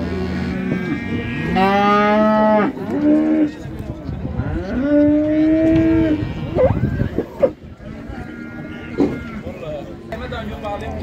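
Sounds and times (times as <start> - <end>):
cattle mooing: 0.0 - 3.6, 4.4 - 6.8, 7.4 - 9.5.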